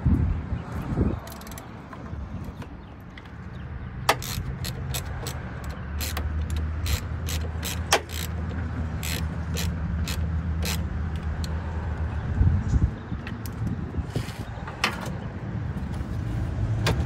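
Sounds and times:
socket ratchet clicking: 1.2 - 1.8, 4.0 - 11.6.

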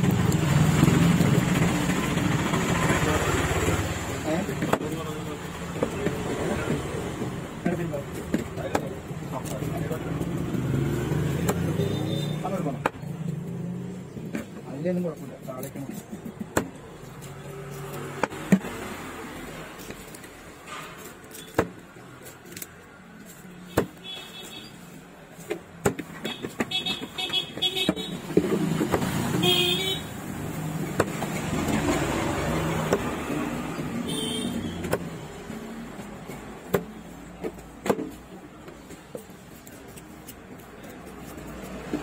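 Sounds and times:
traffic: 0.0 - 42.0
vehicle passing: 9.7 - 14.1.

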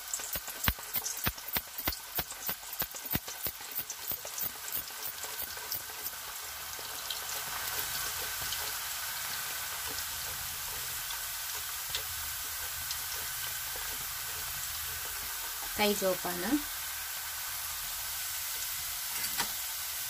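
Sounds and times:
slices sizzling in hot oil: 0.0 - 20.0.

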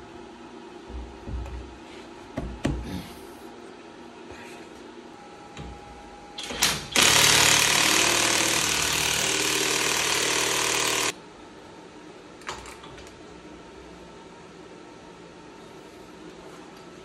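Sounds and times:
impact wrench hammering: 6.9 - 11.1.

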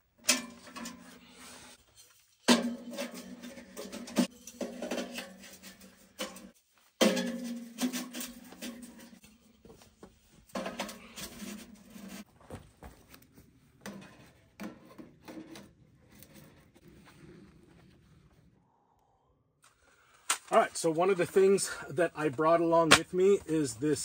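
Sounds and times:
metal pipes scraping and clinking: 0.0 - 12.3.

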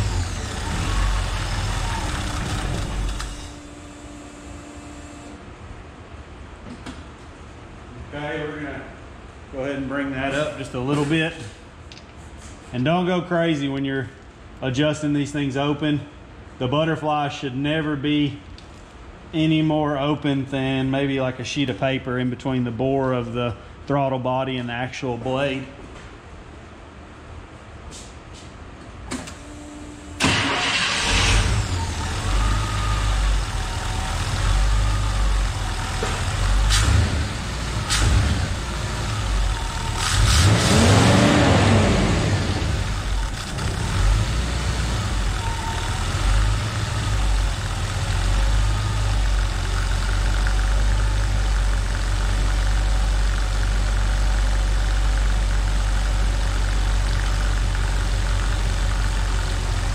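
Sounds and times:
engine starting and idling: 0.0 - 4.0, 30.2 - 59.9.

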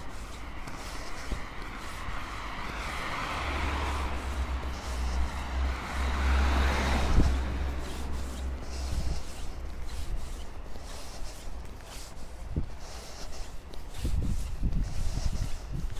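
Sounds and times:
cars driving past: 0.0 - 12.3.

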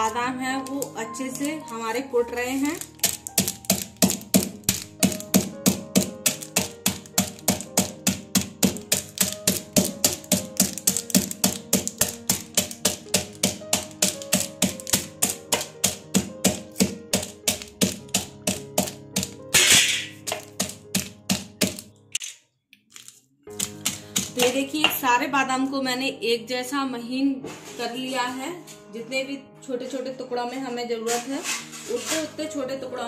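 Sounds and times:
background music: 0.0 - 22.2, 23.4 - 33.0
steel mortar knocking on nuts: 2.8 - 21.8.

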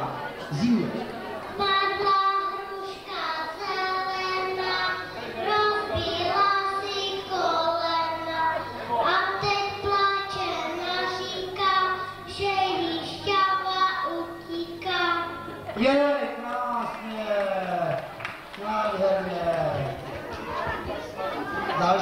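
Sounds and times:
small boy singing into a microphone: 1.6 - 15.4.

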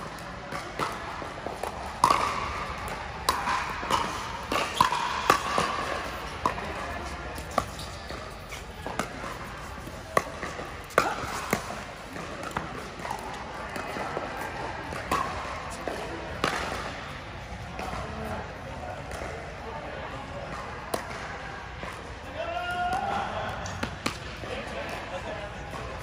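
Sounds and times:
ball bouncing on court: 0.1 - 18.3
paddles hitting ball: 0.5 - 17.0.

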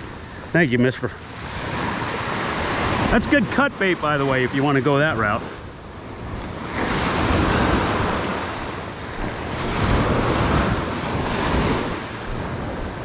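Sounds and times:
surf washing up a beach: 0.0 - 13.0
wind buffeting microphone: 0.0 - 13.0.

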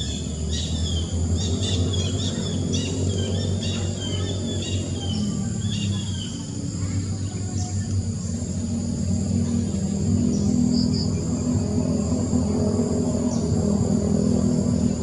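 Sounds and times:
bird chirps: 0.0 - 7.9
insects buzzing: 0.0 - 15.0
low even hum: 0.0 - 15.0.

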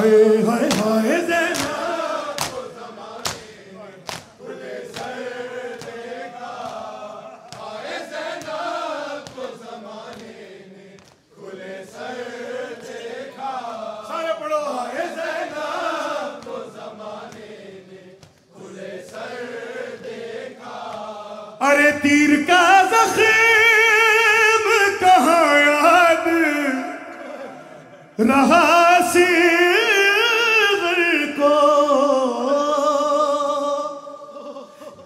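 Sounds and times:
men chanting a lament in unison: 0.0 - 35.0
chest-beating slaps: 0.6 - 10.4.

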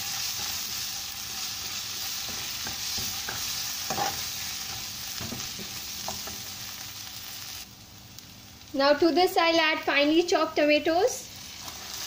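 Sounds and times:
onion sizzling in hot oil: 0.0 - 12.0
spoon scraping and knocking pan: 2.1 - 6.5.

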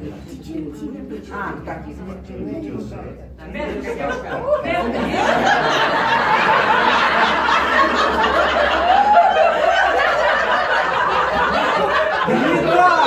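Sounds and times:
group laughing: 3.6 - 13.0.

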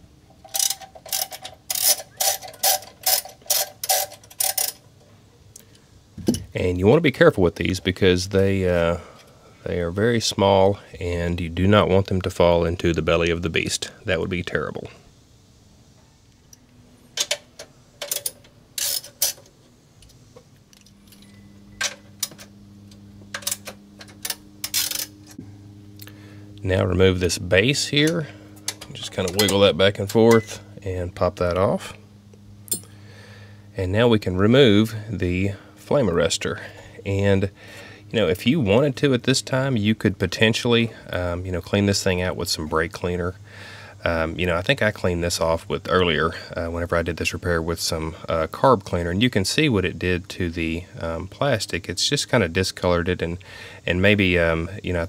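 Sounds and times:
ratchet wrench clicking: 0.4 - 4.8, 18.0 - 19.5, 23.3 - 25.4.

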